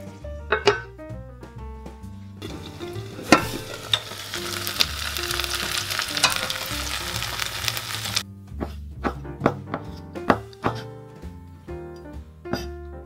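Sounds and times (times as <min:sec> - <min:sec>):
soft background music: 0:00.0 - 0:13.0
dumplings sizzling in a frying pan: 0:02.4 - 0:08.2.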